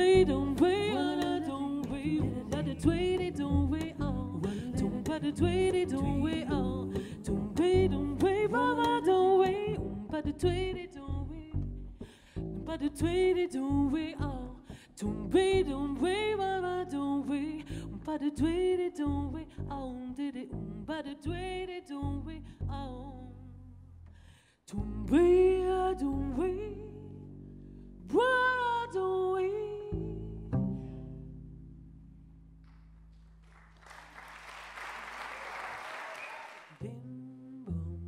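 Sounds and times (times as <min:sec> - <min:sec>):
woman singing with vibrato: 0:00.0 - 0:11.5, 0:12.7 - 0:23.4, 0:24.7 - 0:27.1, 0:28.1 - 0:30.4, 0:36.7 - 0:38.0
double bass plucked notes: 0:00.0 - 0:33.4, 0:36.8 - 0:38.0.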